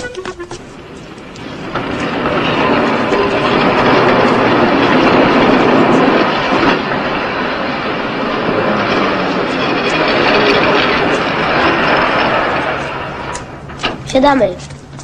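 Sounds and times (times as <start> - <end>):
tram rumbling on rails: 0.0 - 15.0.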